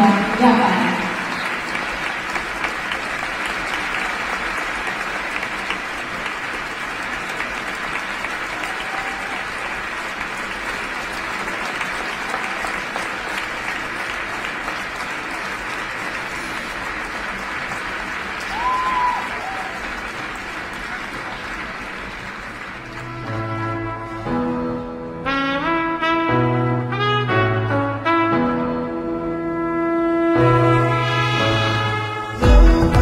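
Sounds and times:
crowd applauding: 0.0 - 23.9.

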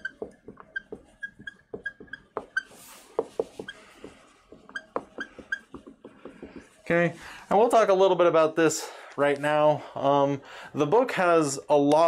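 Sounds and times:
marker squeaking on whiteboard: 0.0 - 7.0.

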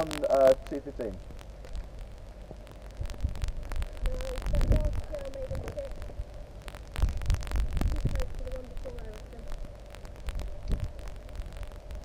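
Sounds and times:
wind buffeting microphone: 2.8 - 12.0.

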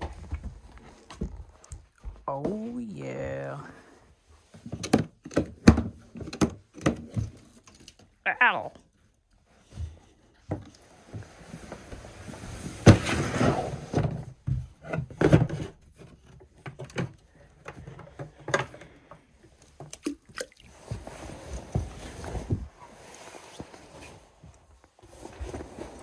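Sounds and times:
rustling: 20.6 - 26.0.

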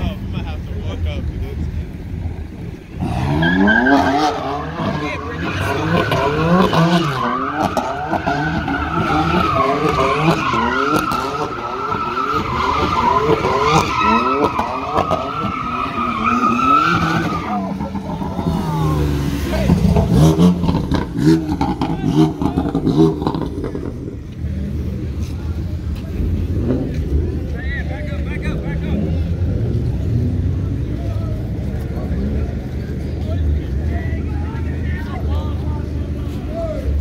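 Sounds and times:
car engine revving: 0.0 - 37.0
tyre squeal: 3.2 - 17.9.

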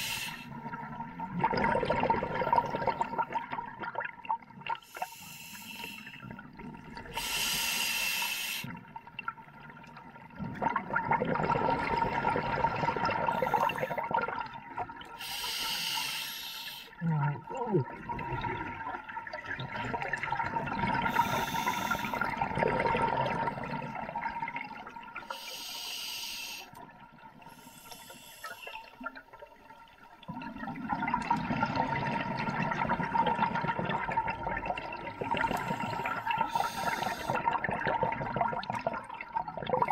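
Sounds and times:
regulator inhale hiss: 0.0 - 0.5, 4.9 - 6.2, 7.1 - 8.8, 13.3 - 14.0, 15.2 - 17.0, 21.1 - 22.2, 25.3 - 26.8, 27.5 - 28.9, 35.5 - 37.4
bubbling exhalation: 1.3 - 4.1, 17.0 - 24.7.

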